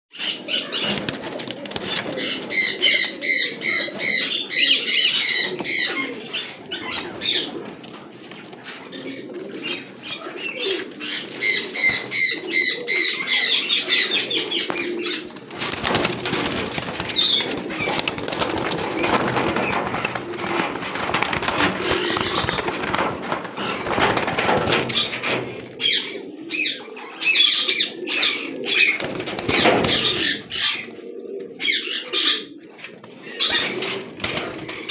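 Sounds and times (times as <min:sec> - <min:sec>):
pigeons cooing: 0:00.1 - 0:34.9
rustle of feathers and straw: 0:14.1 - 0:25.7
wing flaps: 0:14.7 - 0:25.8.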